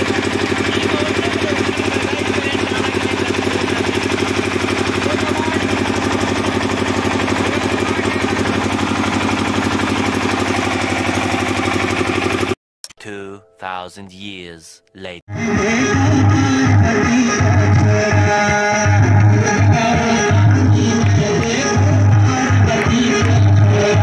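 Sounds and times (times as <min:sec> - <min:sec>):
diesel engine running: 0:00.0 - 0:12.6, 0:15.6 - 0:24.0.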